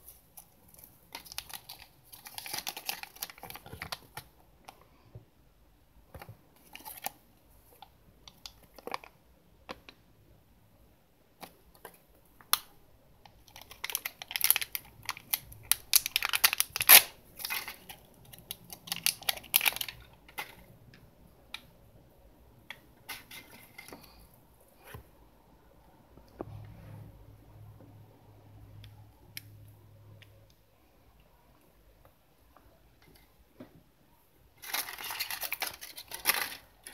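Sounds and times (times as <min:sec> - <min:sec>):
plastic wrapper crinkling and tearing: 0:00.0 - 0:04.3, 0:06.6 - 0:09.2, 0:13.3 - 0:20.7, 0:34.6 - 0:36.9
clicks and paper rustles: 0:34.6 - 0:36.9.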